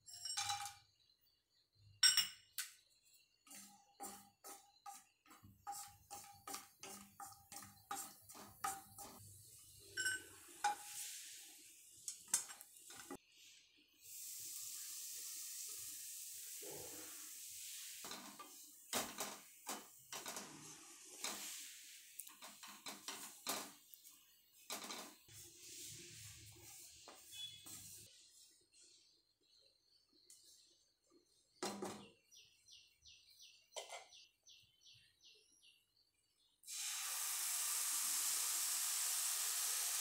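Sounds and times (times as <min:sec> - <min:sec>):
spatula tapping and scraping pan: 0:03.4 - 0:09.2, 0:10.0 - 0:11.1
hiss of crumbs poured: 0:10.8 - 0:12.0, 0:13.2 - 0:18.8, 0:20.6 - 0:22.2, 0:36.7 - 0:40.0.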